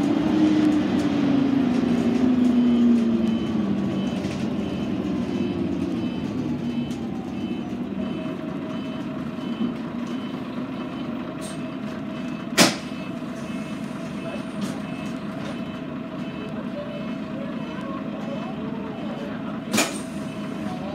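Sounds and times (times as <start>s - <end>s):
bus diesel engine idling: 0.0s - 20.9s
high electronic beeps: 2.6s - 17.8s
sharp clack: 19.7s - 20.1s.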